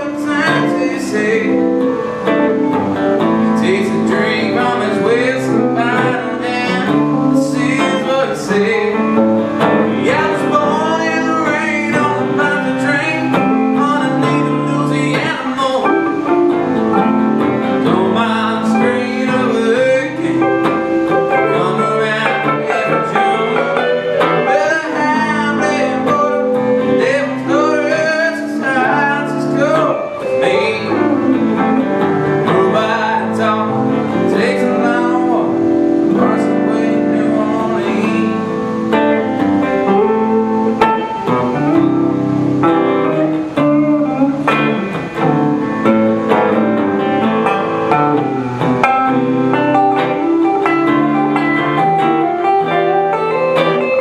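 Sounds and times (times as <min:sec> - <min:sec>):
man singing: 0:00.0 - 0:42.4
electric guitars playing: 0:00.0 - 0:54.0.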